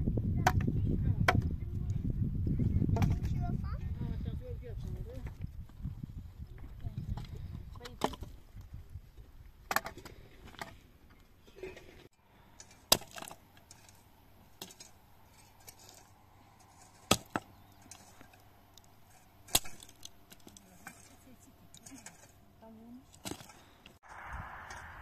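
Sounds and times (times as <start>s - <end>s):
axe chopping firewood: 12.6s - 13.5s, 16.9s - 18.2s, 19.5s - 21.0s
digging tools knocking stony earth: 12.6s - 16.1s, 16.8s - 18.4s, 19.4s - 22.4s.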